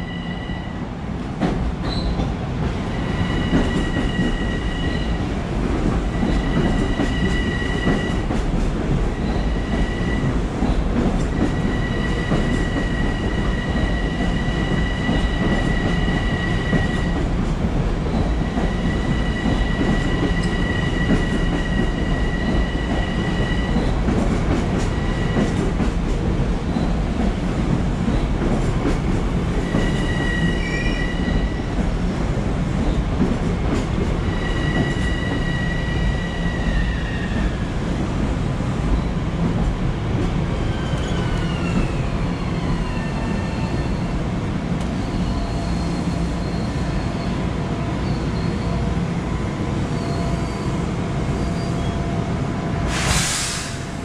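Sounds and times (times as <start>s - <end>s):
train wheels rumbling: 0.0s - 54.0s
high-pitched brake squeal: 45.0s - 47.4s, 51.4s - 52.0s
short air hiss: 52.9s - 54.0s.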